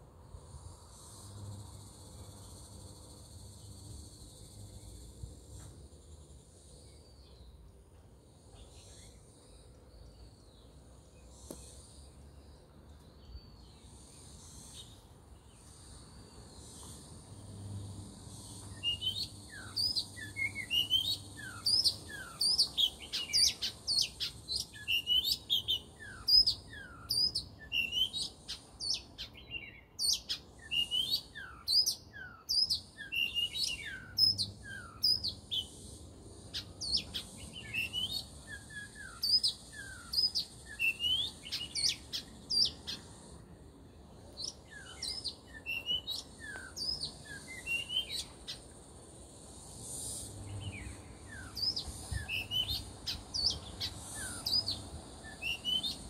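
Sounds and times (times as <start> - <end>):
high insect drone: 0.0 - 56.0
bird singing whistled notes: 18.5 - 35.8, 36.5 - 43.2, 44.3 - 48.6, 50.4 - 56.0.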